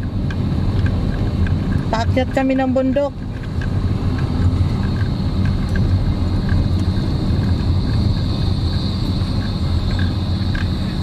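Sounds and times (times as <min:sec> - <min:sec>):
road and wind hiss: 0:00.0 - 0:11.0
vehicle engine drone: 0:00.0 - 0:11.0.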